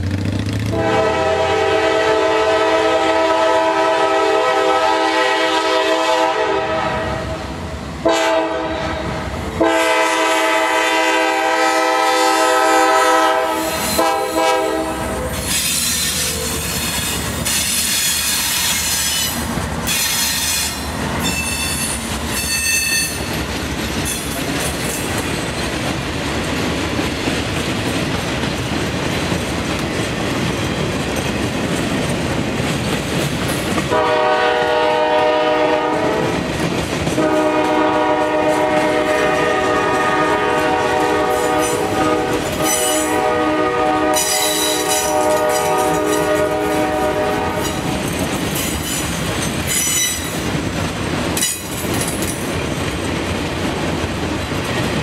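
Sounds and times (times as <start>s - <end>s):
freight cars rumbling on rails: 0.0s - 55.0s
locomotive air horn blasts: 0.7s - 15.7s, 33.9s - 36.4s, 37.2s - 47.9s
high wheel squeals: 15.3s - 23.3s.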